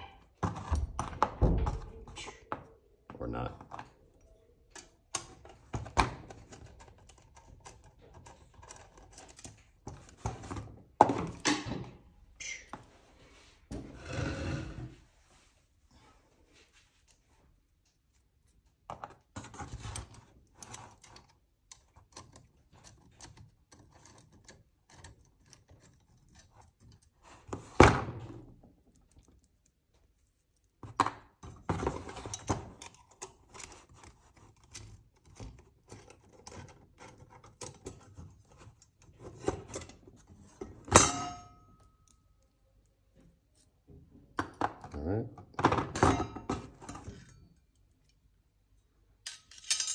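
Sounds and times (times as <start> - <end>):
small metal parts clinking: 49.2 - 49.9.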